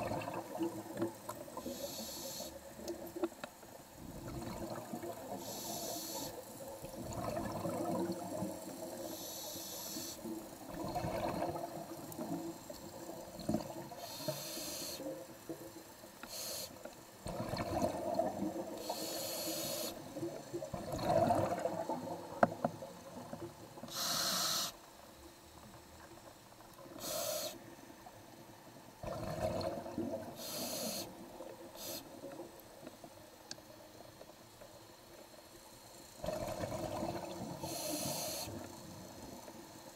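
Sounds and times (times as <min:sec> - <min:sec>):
exhaled air bubbling: 0:00.0 - 0:02.0, 0:04.0 - 0:09.2, 0:10.2 - 0:14.2, 0:17.2 - 0:24.0, 0:29.0 - 0:31.9, 0:36.2 - 0:39.4
regulator inhale hiss: 0:01.6 - 0:02.9, 0:05.3 - 0:06.6, 0:08.8 - 0:10.4, 0:13.9 - 0:15.2, 0:16.2 - 0:17.0, 0:18.7 - 0:20.2, 0:23.8 - 0:24.9, 0:26.8 - 0:27.8, 0:30.3 - 0:32.4, 0:37.5 - 0:39.8.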